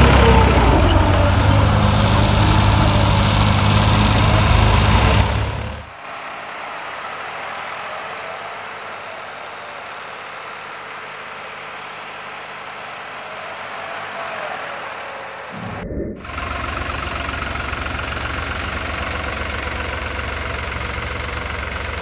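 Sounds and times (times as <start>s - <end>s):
tractor diesel engine running: 0.0s - 5.9s, 15.6s - 22.0s.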